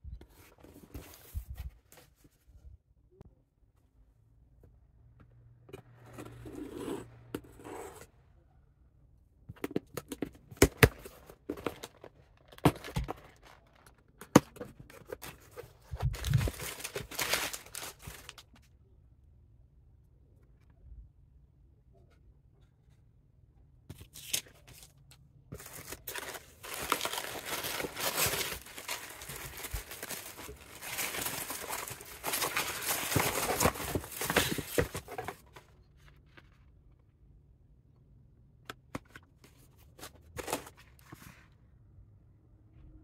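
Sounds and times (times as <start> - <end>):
packaging taps and rustles: 9.6 - 18.4, 25.6 - 35.6
paper packing wrap crinkling: 15.0 - 18.6, 25.6 - 35.6.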